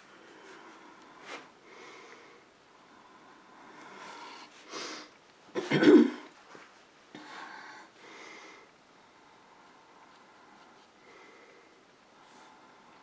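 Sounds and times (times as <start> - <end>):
person sniffing: 3.9 - 5.1
person coughing: 5.6 - 6.3.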